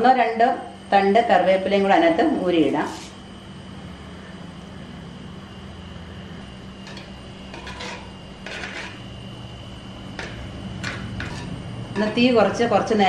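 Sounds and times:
spoon scraping clay pot: 6.8s - 9.2s, 10.1s - 12.7s.

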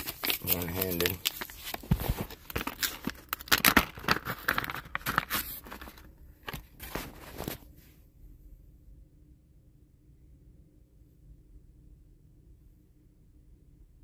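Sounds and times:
plastic bag tearing and crinkling: 0.0s - 7.5s.

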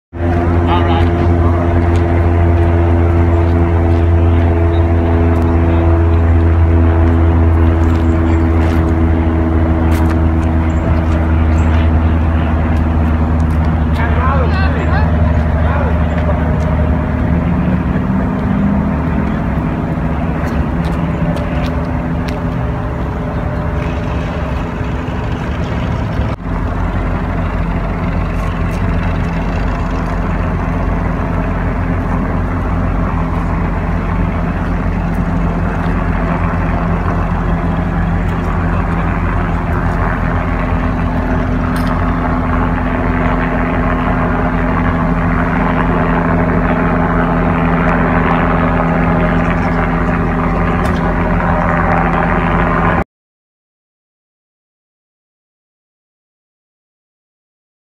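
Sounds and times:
large engine droning: 0.1s - 53.0s.

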